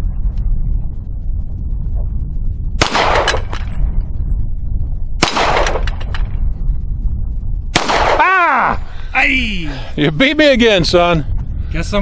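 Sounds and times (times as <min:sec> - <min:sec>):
pistol shots with ringing tail: 0:02.8 - 0:03.8, 0:05.2 - 0:06.2, 0:07.7 - 0:08.4.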